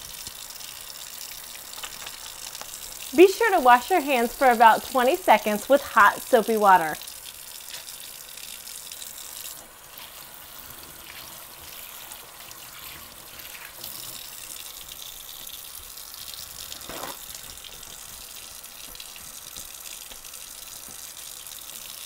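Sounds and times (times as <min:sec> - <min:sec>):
faucet running into steel sink: 0:00.0 - 0:22.0
hands rubbed under water: 0:16.8 - 0:17.5.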